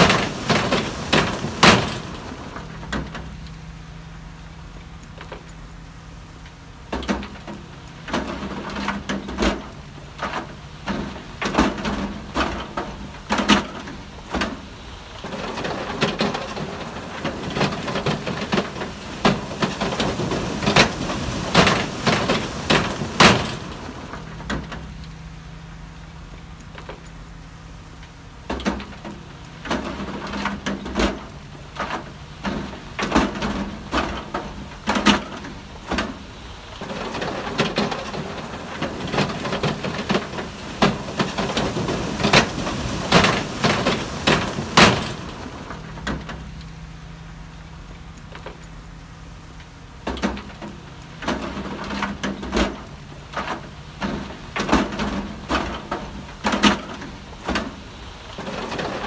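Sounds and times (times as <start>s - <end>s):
machinery knocking and clattering: 0.0s - 3.5s, 6.9s - 25.2s, 28.4s - 46.7s, 50.0s - 59.0s
low engine tone: 0.0s - 59.0s.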